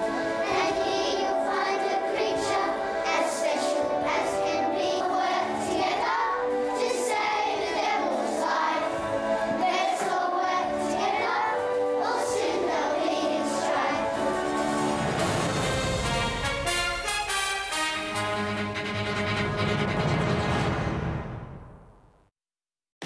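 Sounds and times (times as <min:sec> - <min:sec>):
children singing in unison: 0:00.0 - 0:15.4
musical backing: 0:00.0 - 0:21.8.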